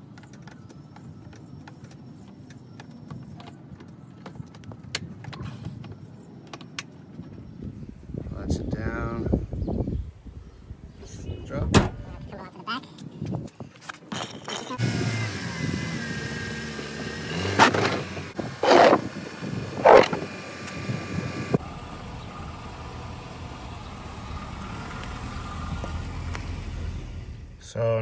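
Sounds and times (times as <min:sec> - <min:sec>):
car engine running: 0:14.8 - 0:27.6.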